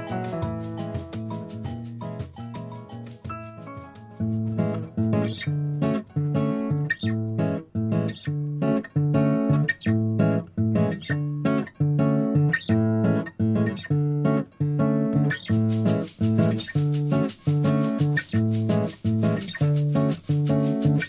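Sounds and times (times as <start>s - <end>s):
plucked acoustic guitar tune: 0.0s - 21.0s.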